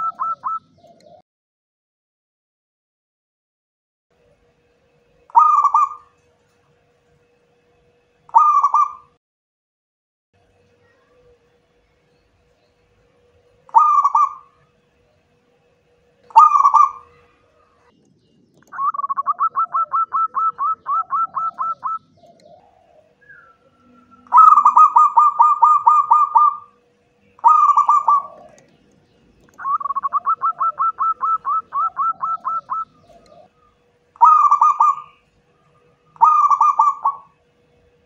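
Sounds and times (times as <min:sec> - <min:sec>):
dove staccato cooing: 0:00.0 - 0:01.2, 0:05.3 - 0:06.2, 0:08.3 - 0:09.1, 0:13.6 - 0:14.6, 0:16.3 - 0:17.9, 0:18.6 - 0:26.8, 0:27.4 - 0:37.4
faint steady hum: 0:04.1 - 0:09.2, 0:10.4 - 0:38.0.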